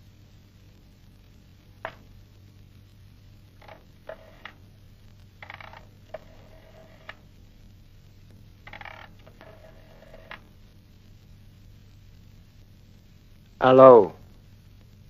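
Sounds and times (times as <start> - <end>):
rotary phone dial ratcheting and whirring: 3.6 - 4.6, 5.4 - 7.2, 8.6 - 10.4.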